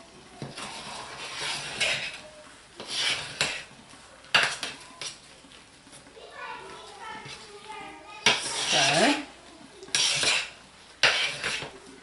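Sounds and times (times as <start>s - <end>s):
utensil scraping a crock: 0.4s - 2.2s, 2.8s - 5.2s, 8.2s - 11.8s.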